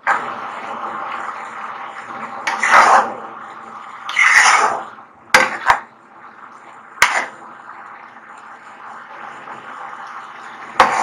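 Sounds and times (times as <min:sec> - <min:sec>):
spoon scraping swish: 0:02.5 - 0:03.2, 0:04.1 - 0:05.6.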